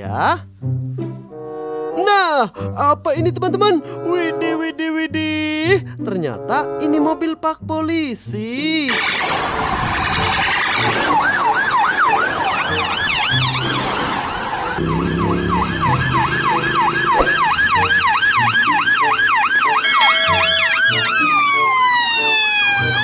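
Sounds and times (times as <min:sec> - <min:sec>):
police siren yelping: 0:08.9 - 0:23.0.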